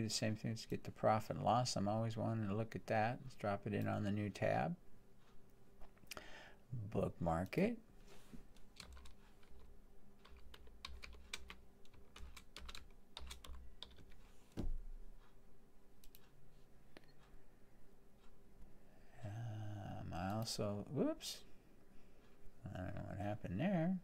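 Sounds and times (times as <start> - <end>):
typing on computer keyboard: 8.8 - 14.2.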